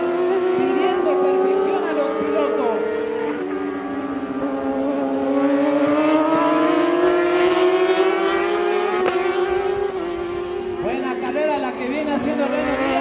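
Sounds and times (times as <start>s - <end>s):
motorcycle engines revving high: 0.0s - 13.0s.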